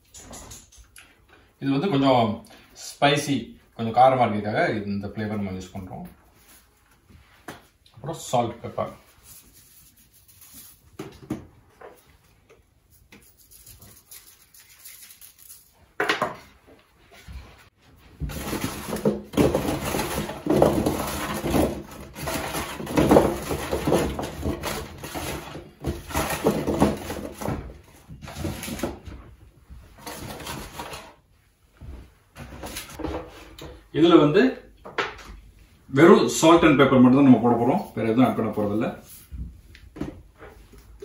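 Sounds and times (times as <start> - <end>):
salt shaking: 12.9 - 15.9.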